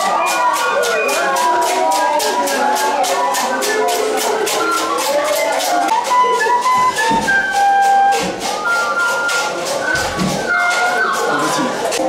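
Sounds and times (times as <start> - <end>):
recorder playing a tune: 0.0 - 12.0
rhythmic percussion beat: 0.0 - 12.0.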